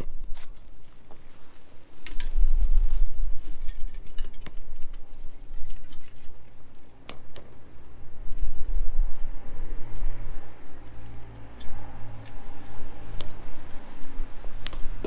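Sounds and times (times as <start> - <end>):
wood fire crackling and popping: 0.0 - 10.1.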